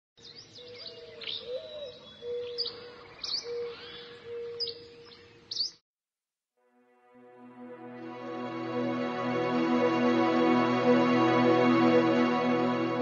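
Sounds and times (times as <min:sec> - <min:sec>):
birds chirping: 0:00.2 - 0:05.8.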